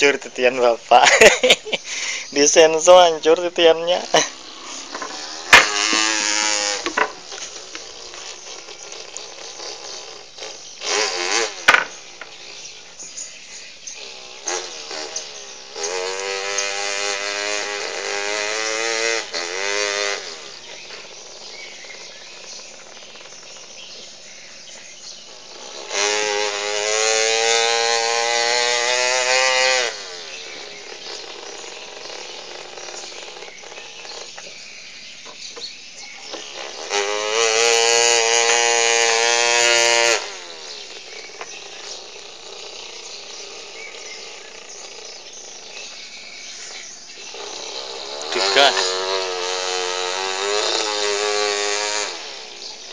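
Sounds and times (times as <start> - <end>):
child imitating chainsaw with voice: 0.1 - 12.6, 14.0 - 23.8, 25.3 - 34.4, 36.3 - 45.7, 47.2 - 52.9.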